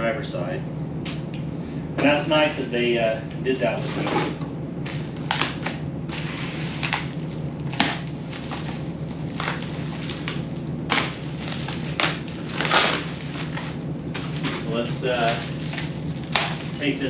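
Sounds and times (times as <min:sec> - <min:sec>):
steady low hum: 0:00.0 - 0:17.0
bubble wrap crinkling: 0:04.8 - 0:17.0
bubble wrap snapping: 0:04.8 - 0:17.0.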